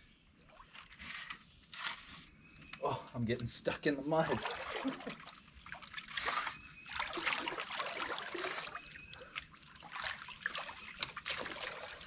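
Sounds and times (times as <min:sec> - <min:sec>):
water splashing and sloshing: 0:04.2 - 0:12.0
person wading in water: 0:04.3 - 0:12.0.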